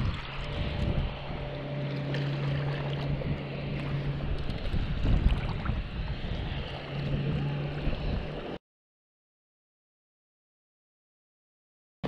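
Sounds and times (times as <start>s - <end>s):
low engine hum: 0.0s - 8.6s
wind buffeting microphone: 0.0s - 8.6s.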